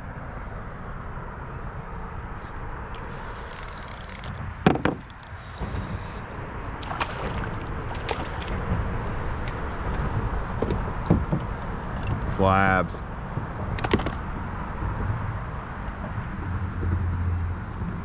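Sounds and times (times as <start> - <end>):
traffic rumble on bridge: 0.0 - 18.0
sharp knocks and clicks: 3.6 - 5.3, 9.9 - 12.3, 13.3 - 14.4.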